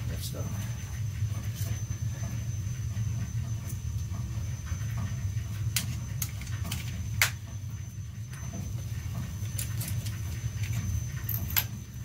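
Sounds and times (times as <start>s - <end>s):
water heater burner rumbling: 0.0s - 12.0s.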